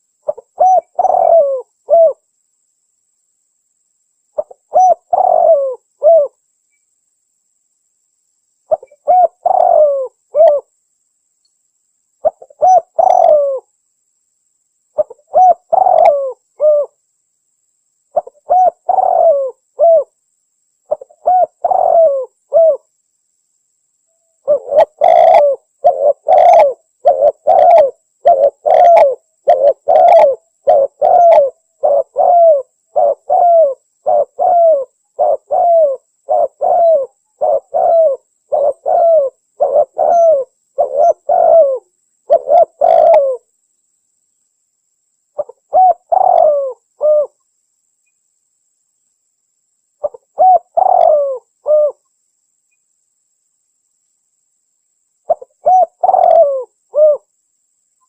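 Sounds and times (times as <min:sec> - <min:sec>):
dove cooing: 0:00.2 - 0:02.2, 0:04.4 - 0:06.4, 0:08.7 - 0:10.7, 0:12.2 - 0:13.7, 0:15.0 - 0:17.0, 0:18.1 - 0:20.2, 0:20.9 - 0:22.9, 0:24.4 - 0:43.5, 0:45.4 - 0:47.4, 0:50.0 - 0:52.0, 0:55.3 - 0:57.3.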